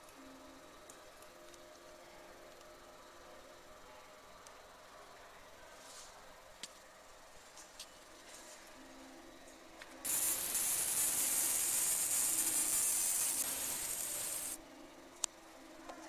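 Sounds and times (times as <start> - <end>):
laser beam hissing on metal: 10.0 - 14.6.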